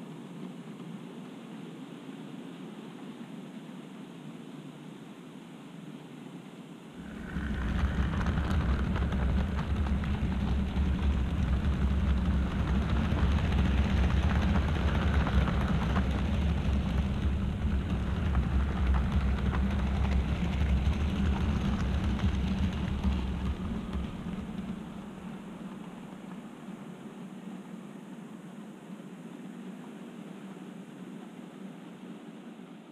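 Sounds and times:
model train rumbling: 7.0 - 26.4.

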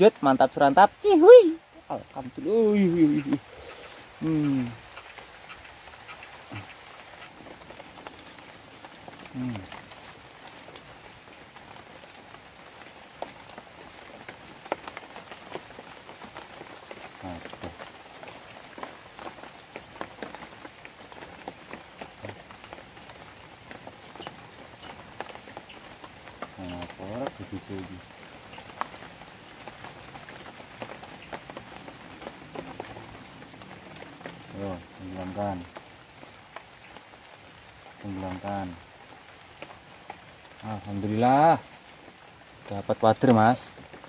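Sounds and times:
rain falling on stream: 0.0 - 44.0.

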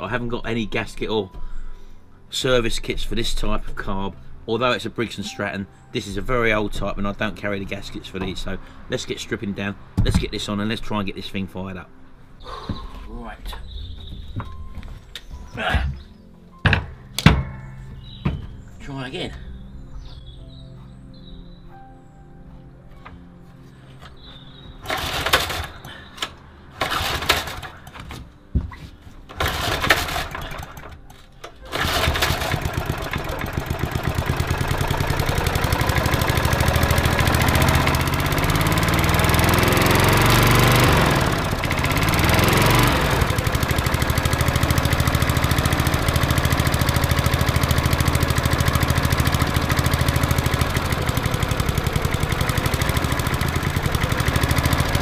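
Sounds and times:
lawnmower engine starting and running: 24.1 - 28.2, 29.3 - 55.0.

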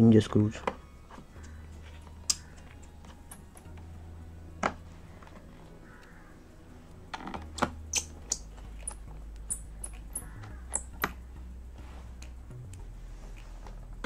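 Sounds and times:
low hum: 2.9 - 14.0.

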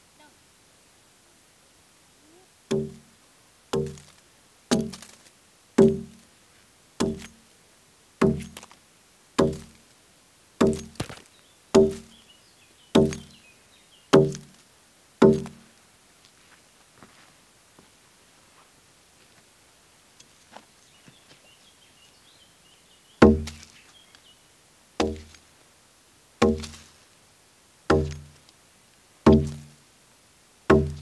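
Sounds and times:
axe chopping into log: 2.7 - 3.0, 3.8 - 4.1, 4.7 - 5.2, 5.8 - 6.2, 7.0 - 7.4, 8.2 - 8.6, 9.4 - 9.8, 10.6 - 11.2, 11.8 - 12.1, 13.0 - 13.4, 14.2 - 14.5, 15.2 - 15.6, 23.2 - 23.7, 25.0 - 25.4, 26.4 - 26.9, 27.9 - 28.4, 29.3 - 29.7, 30.7 - 31.0.

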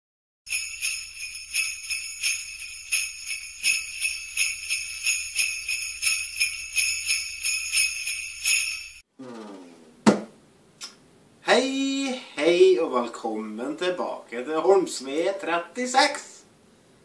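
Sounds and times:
jingle bells shaken: 0.5 - 9.0.

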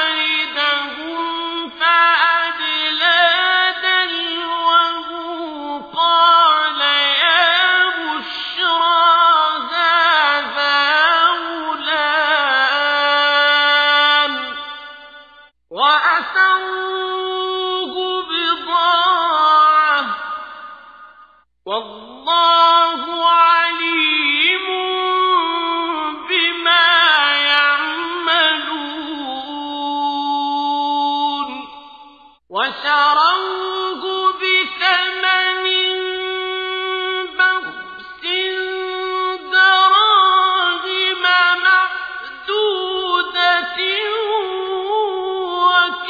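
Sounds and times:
person chanting melodically: 0.0 - 21.1, 21.7 - 46.0.

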